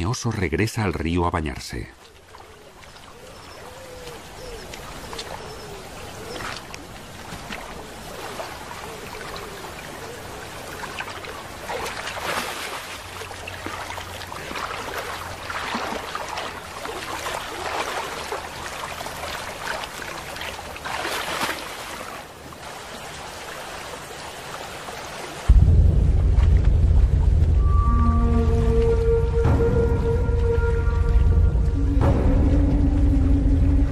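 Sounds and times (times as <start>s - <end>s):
flowing river water: 0.0s - 33.9s
bear splashing in water: 2.1s - 25.6s.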